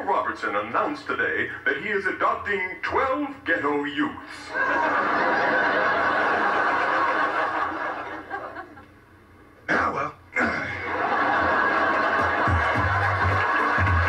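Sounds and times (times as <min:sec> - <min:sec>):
studio audience laughing: 0:04.4 - 0:09.0, 0:10.7 - 0:14.0.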